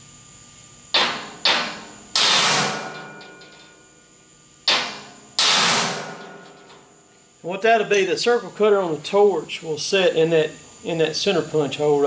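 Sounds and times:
hammer striking metal punch: 0.9s - 3.8s, 4.7s - 6.8s.

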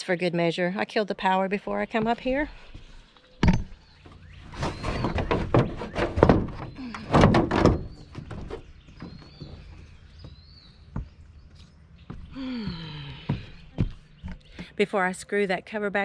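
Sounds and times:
plastic cover knocking and rattling: 4.6s - 9.2s.

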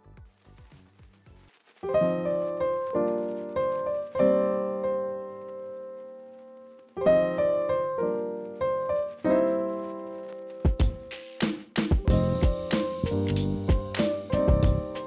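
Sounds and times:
keyboard chords ringing: 12.0s - 15.0s.

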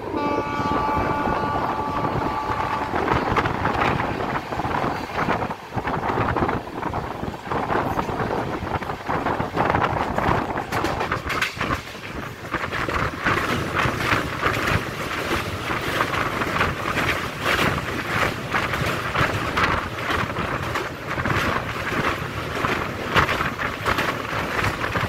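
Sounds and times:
passenger train running on track: 0.0s - 25.0s
wind buffeting microphone: 0.0s - 25.0s.

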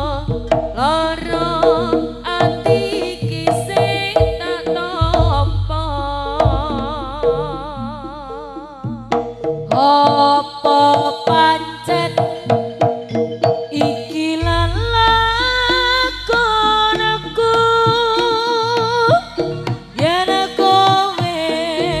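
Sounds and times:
hand drums quick beat: 0.0s - 8.1s
wavering melody line: 0.0s - 22.0s.

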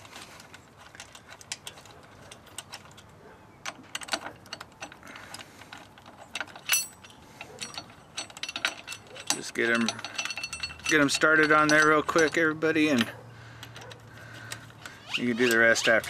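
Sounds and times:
small metal clicks and clinks: 3.8s - 16.0s
ringing metal clink: 6.6s - 13.1s.

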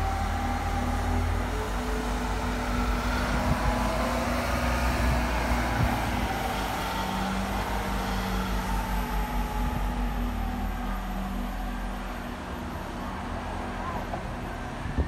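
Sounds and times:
bus engine drone: 0.0s - 15.0s
faint whine: 0.0s - 15.0s.

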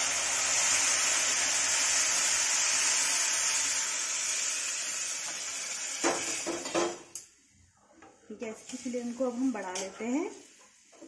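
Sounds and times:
water poured into hot pan: 0.0s - 6.8s
hot pan hissing and sizzling: 0.0s - 7.1s, 8.6s - 11.0s.

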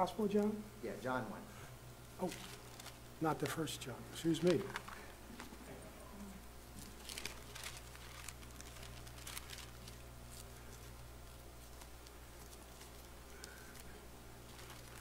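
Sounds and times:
low steady hum: 0.0s - 15.0s
paper pages rustling: 2.2s - 3.6s, 4.2s - 5.6s, 6.8s - 15.0s.

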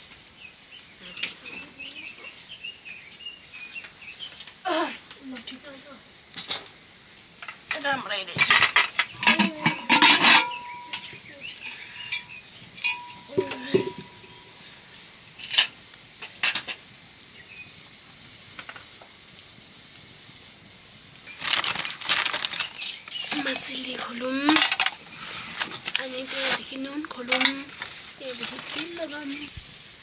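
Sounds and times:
utensils clinking on metal dishes: 7.4s - 14.6s, 21.4s - 29.5s.

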